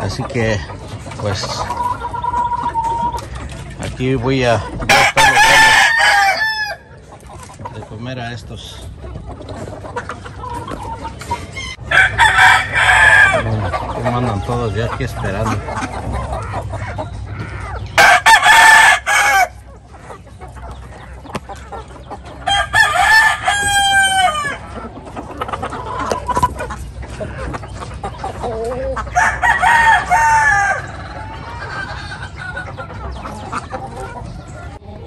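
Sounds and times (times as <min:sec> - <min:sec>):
hens clucking: 0:00.0 - 0:35.0
rooster crowing: 0:04.9 - 0:06.9, 0:11.6 - 0:13.6, 0:18.0 - 0:19.6, 0:22.5 - 0:24.6, 0:29.1 - 0:31.2.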